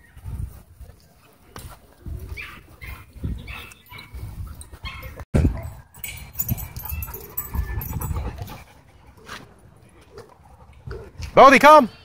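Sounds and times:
dogs whimpering and yipping: 2.3s - 8.9s.

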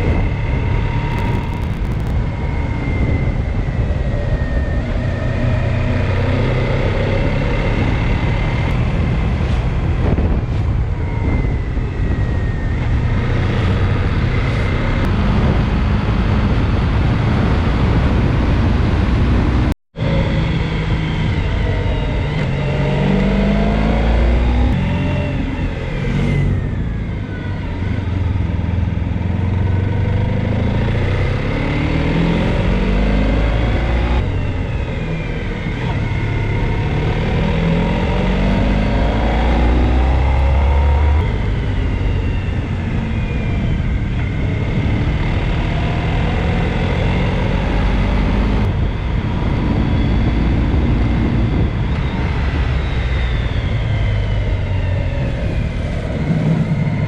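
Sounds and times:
motorcycle engine revving: 0.0s - 57.0s
wind and road noise: 0.0s - 57.0s.

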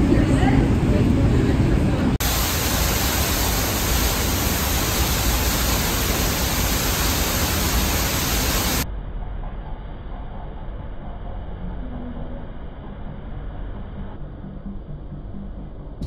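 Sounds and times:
waterfall rushing: 2.2s - 8.8s.

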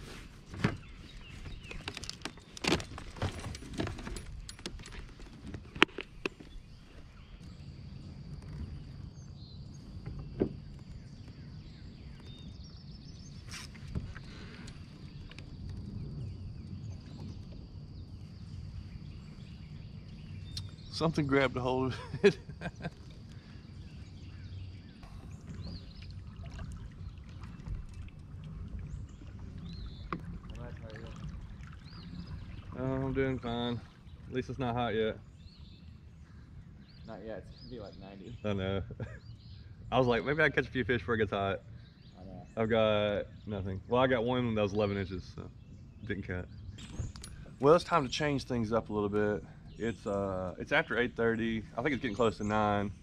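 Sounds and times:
water washing along kayak hull: 0.0s - 42.1s
low steady rumble: 14.4s - 53.0s.

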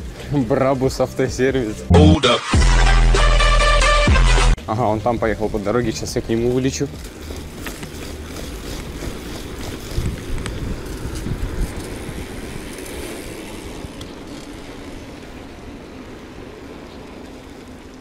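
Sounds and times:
tyres rolling on asphalt: 0.0s - 1.9s, 4.6s - 18.0s
wind rushing over microphone: 8.5s - 16.4s.

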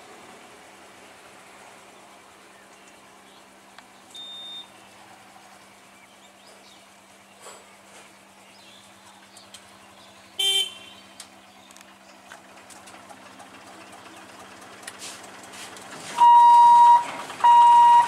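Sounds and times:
faint bird chirps: 2.4s - 11.8s
high-pitched electronic beep: 16.2s - 18.0s.

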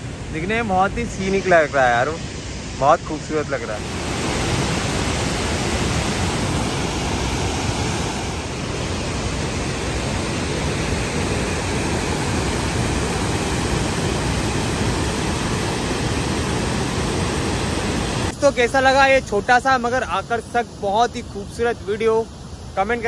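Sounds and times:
waterfall and rapids rushing: 0.0s - 23.0s.

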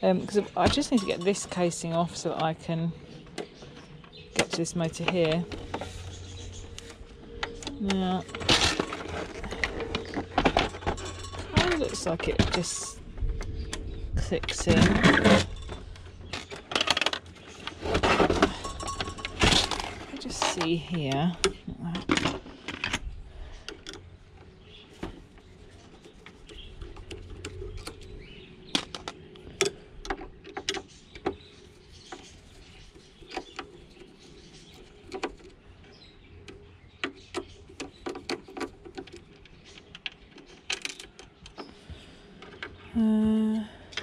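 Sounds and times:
clicks and knocks of plastic casing: 36.4s - 42.8s.

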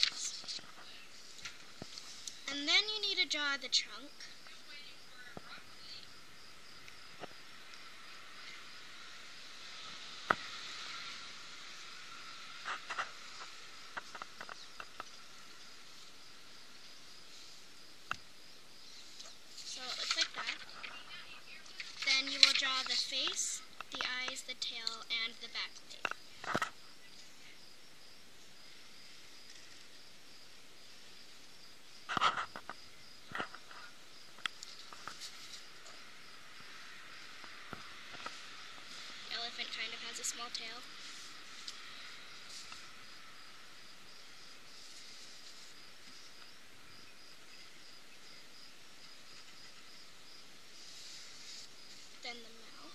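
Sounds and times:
faint hiss: 0.0s - 52.9s.

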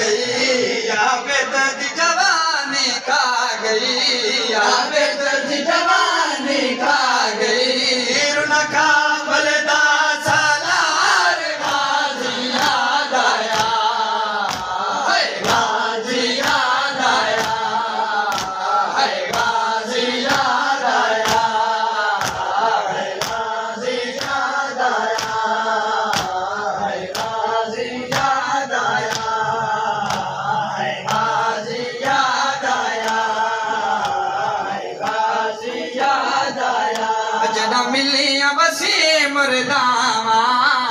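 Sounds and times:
men chanting in unison: 0.0s - 40.9s
hands slapping chests: 11.6s - 15.8s, 16.4s - 27.4s, 28.0s - 29.4s, 30.0s - 30.4s, 31.0s - 31.4s, 32.0s - 35.4s, 36.8s - 37.2s.

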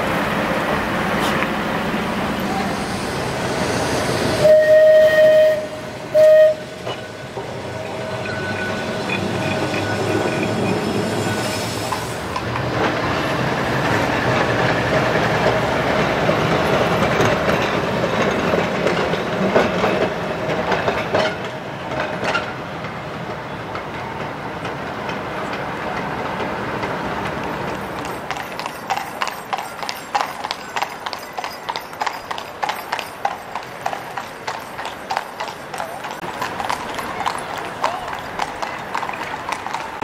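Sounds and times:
tram rumbling on rails: 0.0s - 40.0s
tram horn tooting: 4.4s - 12.7s
wheels clicking over track: 8.2s - 40.0s.

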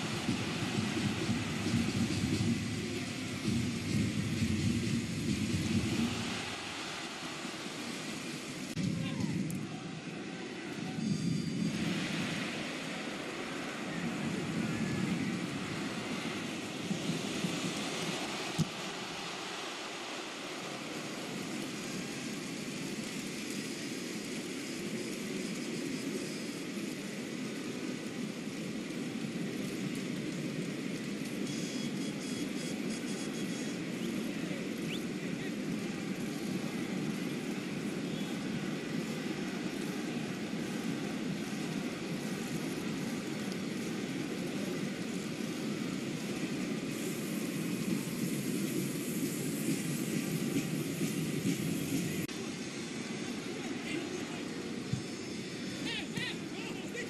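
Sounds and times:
stadium crowd hum: 0.0s - 57.0s
stadium crowd din: 52.1s - 57.0s.

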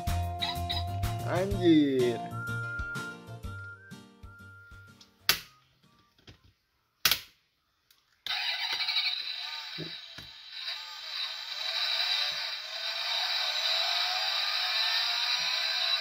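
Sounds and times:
toy speaker engine sound effect: 8.3s - 16.0s.

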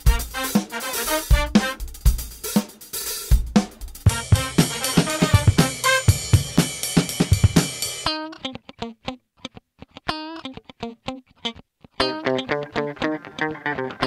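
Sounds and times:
drum beat: 0.0s - 8.1s
guitar: 4.1s - 14.0s.

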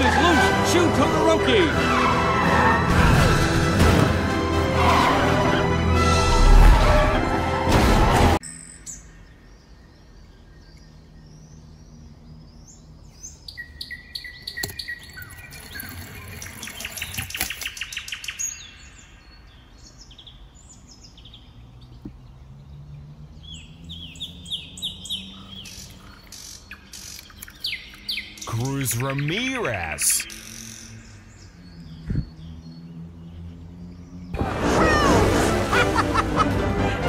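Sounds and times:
small birds chirping: 8.5s - 34.4s.

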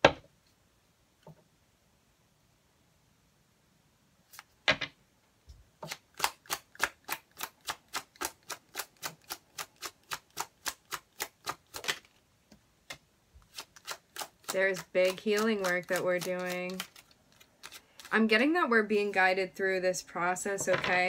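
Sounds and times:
cards being shuffled: 5.8s - 12.2s, 12.9s - 18.1s.

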